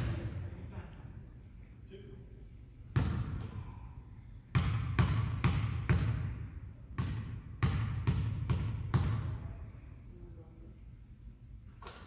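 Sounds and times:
basketball bouncing on wooden floor: 0:03.0 - 0:03.4, 0:04.5 - 0:09.4.

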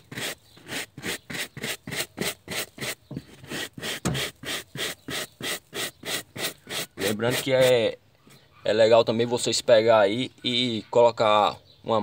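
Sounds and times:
stiff brush scrubbing carpet: 0:00.0 - 0:07.8.

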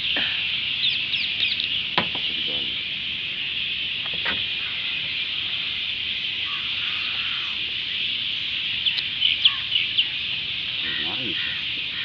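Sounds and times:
faint calls: 0:00.0 - 0:12.0.

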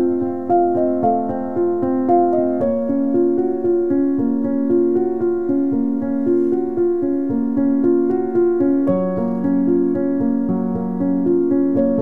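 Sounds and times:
keyboard melody: 0:00.0 - 0:12.0.

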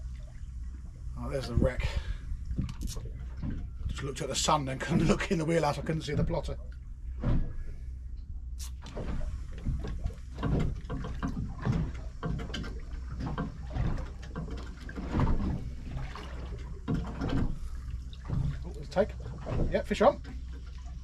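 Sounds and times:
boat knocking and clattering: 0:00.0 - 0:21.0
steady low hum: 0:00.0 - 0:21.0
water slapping boat hull: 0:00.0 - 0:21.0.

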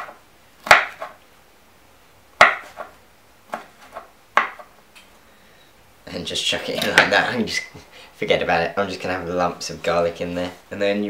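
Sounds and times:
knife chopping on wooden board: 0:00.0 - 0:01.2, 0:02.4 - 0:04.7.

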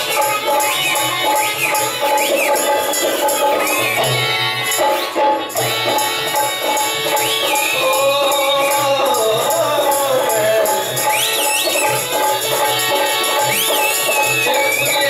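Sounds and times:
high sliding whistle-like tones: 0:00.0 - 0:04.2, 0:11.0 - 0:15.0
harmonium playing reedy chords: 0:00.0 - 0:15.0
rhythmic percussion: 0:00.0 - 0:15.0.

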